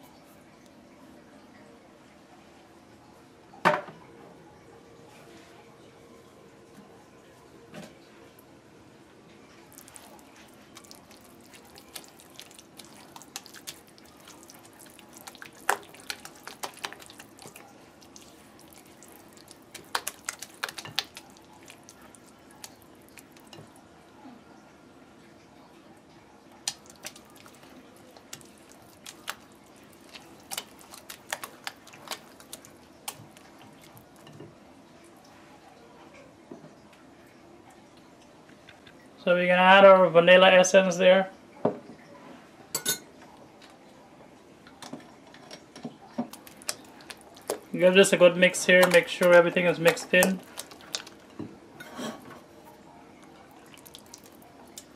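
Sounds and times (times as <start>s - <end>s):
spatula stirring wet batter: 9.7s - 23.8s, 26.6s - 34.4s, 46.2s - 54.9s.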